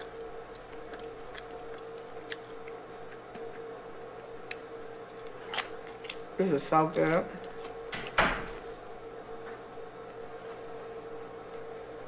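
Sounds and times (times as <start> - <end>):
person chewing soft food: 0.0 - 7.9
faint steady hum: 0.0 - 12.0.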